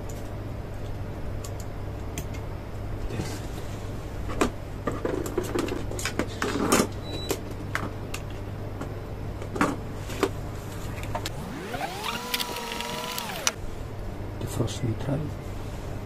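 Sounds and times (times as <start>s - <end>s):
steady low hum: 11.3s - 13.6s.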